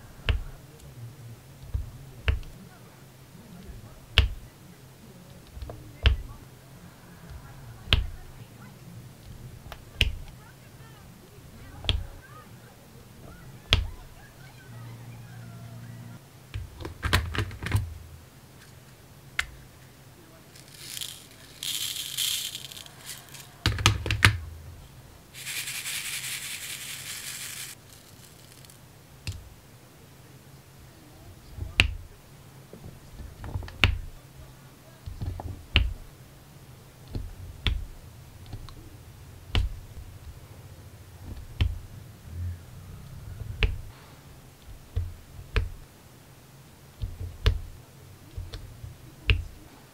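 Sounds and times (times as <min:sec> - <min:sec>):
resin beads rattling in plastic tray: 0:20.5 - 0:24.2, 0:25.4 - 0:28.8.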